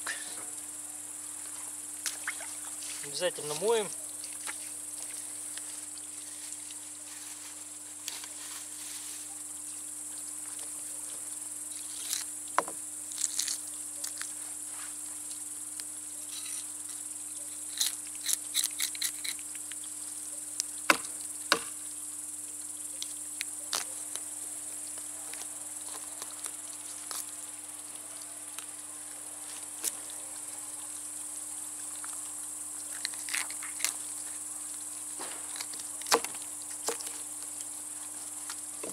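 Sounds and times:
high-pitched insect chorus: 0:00.0 - 0:38.9.

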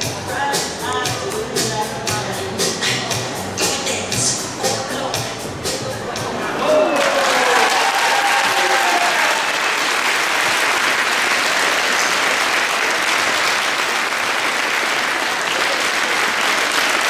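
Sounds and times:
music: 0:00.0 - 0:06.9
audience applauding: 0:06.5 - 0:17.0.

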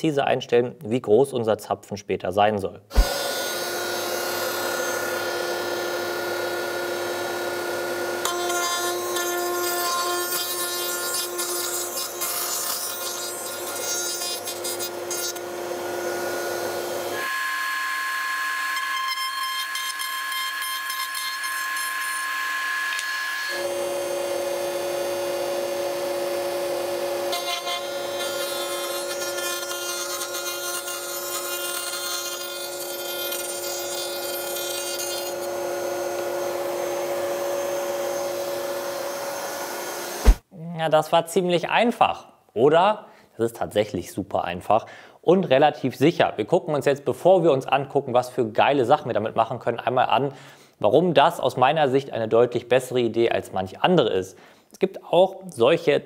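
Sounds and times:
hissing cutting of wood: 0:02.9 - 0:06.2, 0:35.0 - 0:40.5
router motor whine: 0:02.9 - 0:10.2, 0:13.6 - 0:31.4, 0:34.2 - 0:40.4.

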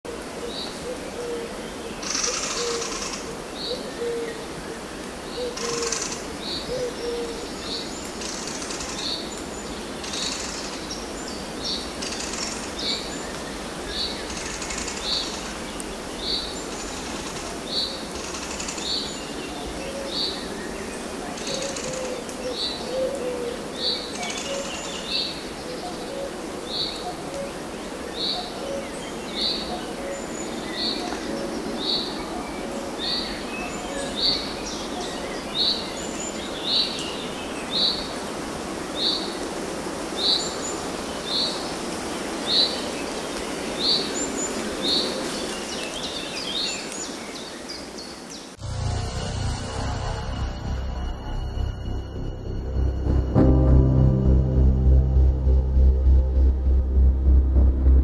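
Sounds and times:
low bird notes: 0:49.0 - 0:58.0.

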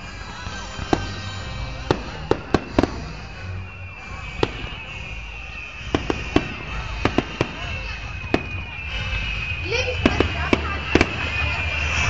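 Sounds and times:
fireworks bangs: 0:00.0 - 0:12.0
steady background noise: 0:00.0 - 0:12.0.

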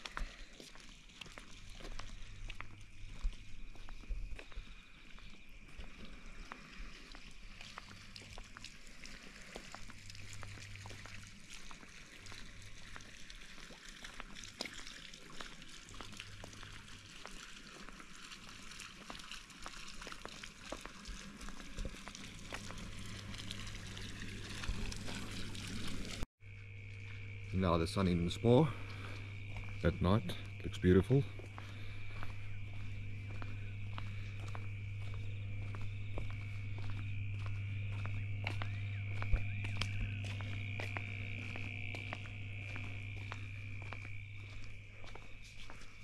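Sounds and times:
fountain water trickling and splashing: 0:00.0 - 0:04.5, 0:05.7 - 0:26.3, 0:39.7 - 0:45.8
night insects chirring: 0:00.0 - 0:46.0.

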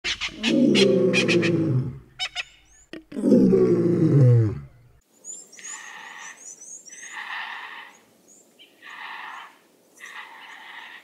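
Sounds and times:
deep animal roars: 0:03.2 - 0:04.7
small birds chirping: 0:05.0 - 0:11.0.

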